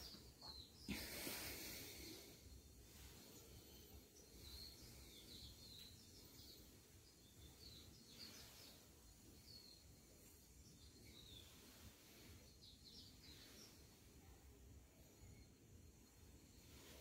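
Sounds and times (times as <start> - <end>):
bird chirps: 0.0 - 0.9, 3.1 - 14.0.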